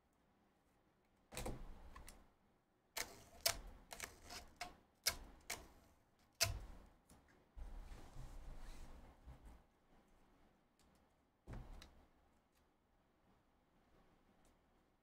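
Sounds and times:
sharp clicks and light knocks: 0:03.0 - 0:07.3.

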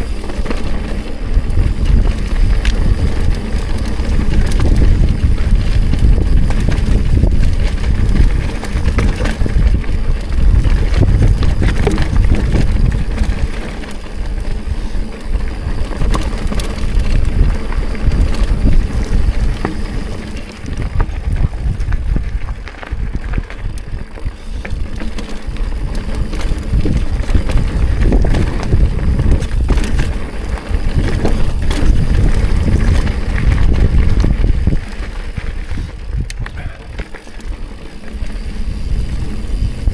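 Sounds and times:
bike rattling over bumps: 0:00.0 - 0:39.9
wind buffeting microphone: 0:00.0 - 0:39.9
tyres rolling over rock: 0:00.1 - 0:14.7, 0:15.5 - 0:39.9.

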